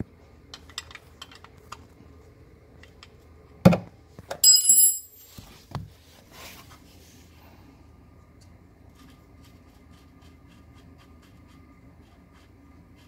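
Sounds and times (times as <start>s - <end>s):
metallic clang ringing: 4.4s - 5.2s.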